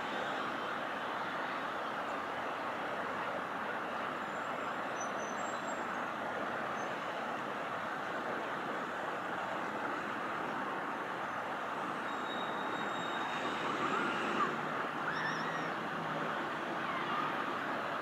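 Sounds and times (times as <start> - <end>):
distant jet engines roaring: 0.0 - 18.0.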